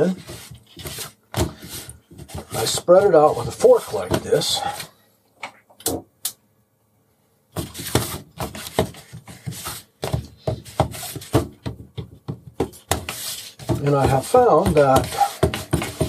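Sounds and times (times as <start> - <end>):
fork tapping and scraping a paper plate: 7.6 - 16.0.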